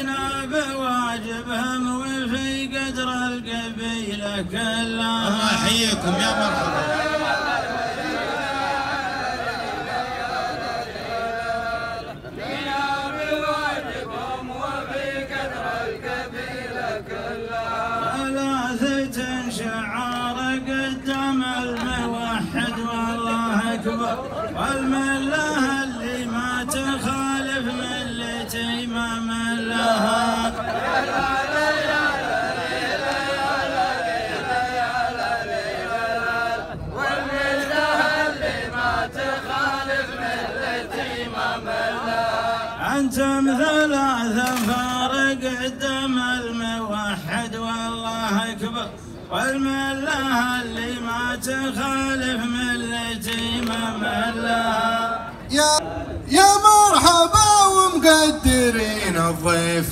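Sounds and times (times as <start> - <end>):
men chanting in unison: 0.0 - 59.9.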